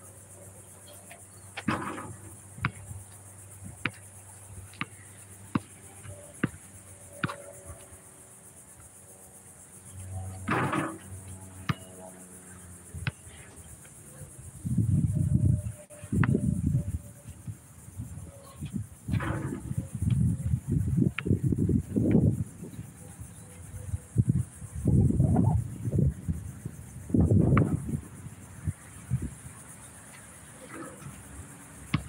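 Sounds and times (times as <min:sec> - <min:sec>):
high insect buzz: 0:00.0 - 0:32.0
ball hitting hoop: 0:01.6 - 0:02.8, 0:10.4 - 0:11.9
basketball bouncing on concrete: 0:01.6 - 0:02.9, 0:03.8 - 0:04.0, 0:04.7 - 0:05.7, 0:10.5 - 0:11.9.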